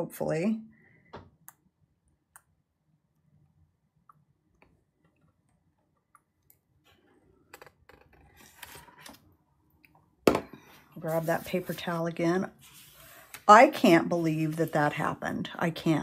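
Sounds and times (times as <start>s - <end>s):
soft paper rustle: 8.3s - 9.3s, 10.6s - 15.2s.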